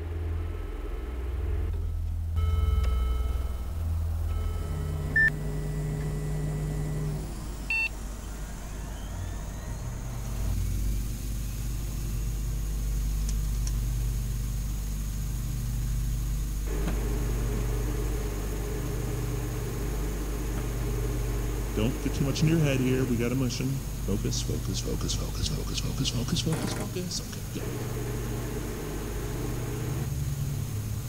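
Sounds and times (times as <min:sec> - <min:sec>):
low electronic drone: 0:00.0 - 0:13.6, 0:16.5 - 0:26.4.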